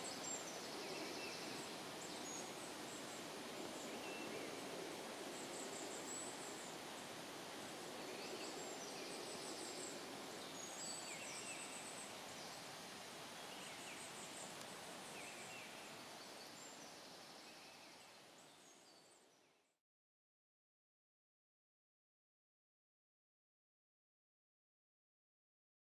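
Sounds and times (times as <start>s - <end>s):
woodland background hiss: 0.0s - 19.8s.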